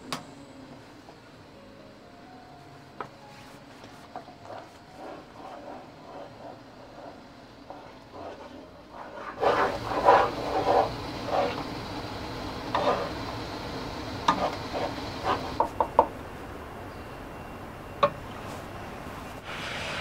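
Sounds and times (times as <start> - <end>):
wooden spoon scraping frying pan: 4.2 - 13.5, 14.2 - 15.7.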